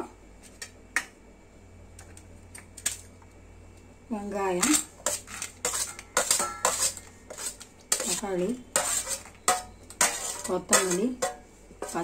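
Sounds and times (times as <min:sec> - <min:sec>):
spoon clinking on steel bowl: 0:05.7 - 0:07.1, 0:07.9 - 0:12.0.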